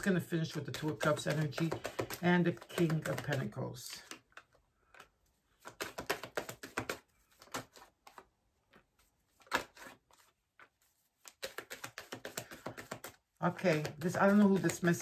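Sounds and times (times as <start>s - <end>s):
cards clicking and tapping: 0.0s - 15.0s.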